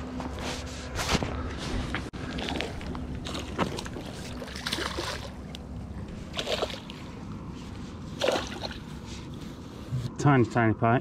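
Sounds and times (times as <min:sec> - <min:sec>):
low steady rumble: 0:00.0 - 0:11.0
fish splashing at surface: 0:02.3 - 0:05.4, 0:06.3 - 0:07.1, 0:08.2 - 0:08.9.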